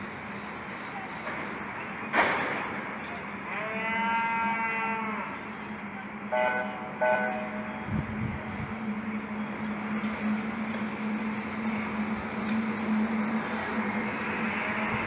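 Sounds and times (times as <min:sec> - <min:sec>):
steady low hum: 0:05.2 - 0:15.0.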